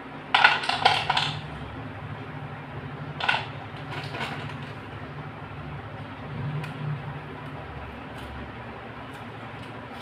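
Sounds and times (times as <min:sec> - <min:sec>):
steady low hum: 0:00.0 - 0:10.0
pencils clattering on plastic plate: 0:00.3 - 0:01.5, 0:03.2 - 0:04.8.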